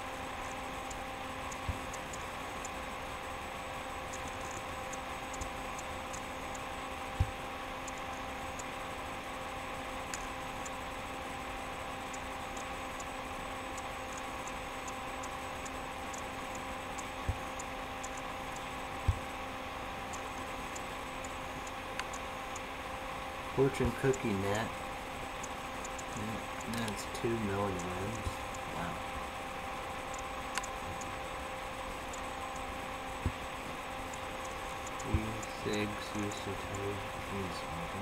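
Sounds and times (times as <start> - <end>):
electrical hum and hiss: 0.0 - 38.0
faint irregular ticking: 11.8 - 22.7, 23.5 - 38.0.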